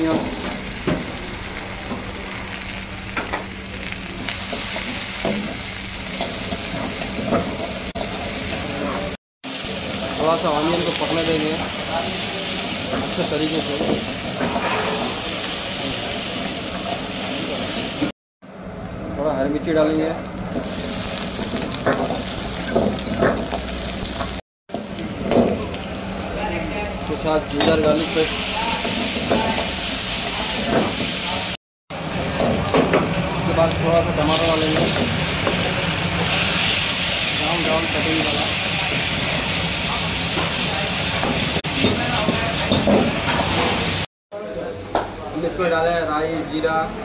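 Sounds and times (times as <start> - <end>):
onions sizzling in oil: 0.0 - 18.1, 19.9 - 26.2, 27.9 - 44.1
spatula scraping a wok: 12.1 - 16.7
wooden spatula scraping pan: 13.8 - 15.4.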